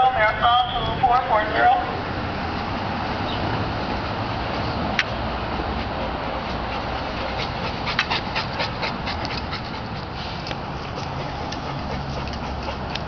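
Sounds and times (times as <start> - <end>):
dog panting: 5.8 - 13.0.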